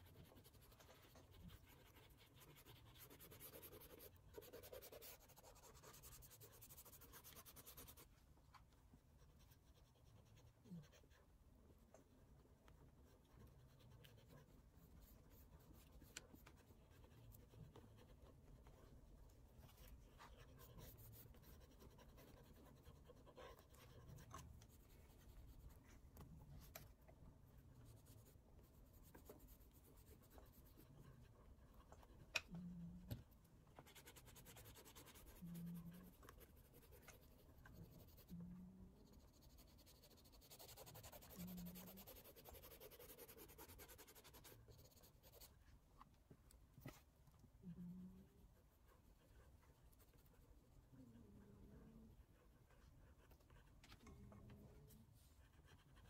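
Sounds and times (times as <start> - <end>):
pastel scratching on paper: 0.0 - 8.1, 12.9 - 26.9, 27.8 - 32.2, 33.7 - 45.6, 54.8 - 56.0.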